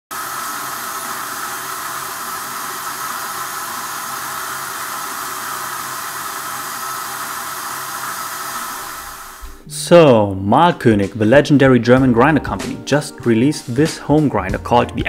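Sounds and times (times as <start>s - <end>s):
coffee grinder grinding: 0.1s - 9.6s.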